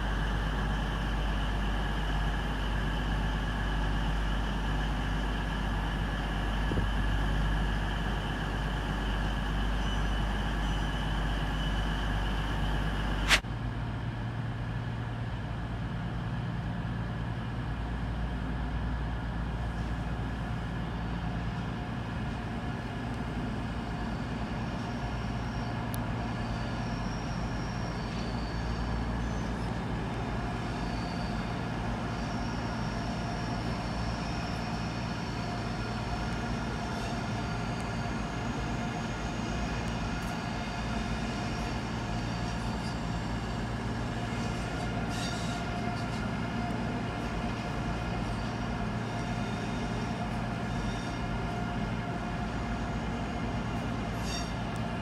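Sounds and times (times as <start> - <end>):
low hum of trains: 0.0 - 55.0
train engines humming: 0.0 - 55.0
sharp click: 13.2 - 13.4.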